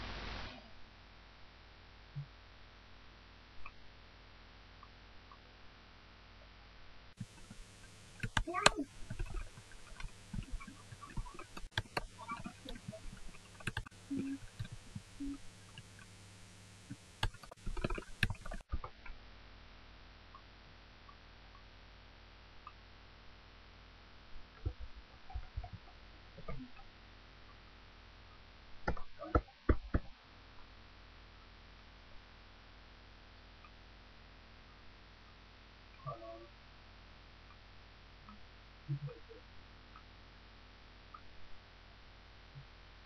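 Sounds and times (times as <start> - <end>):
steady low hum: 0.0 - 43.0
computer keyboard typing: 8.2 - 14.8.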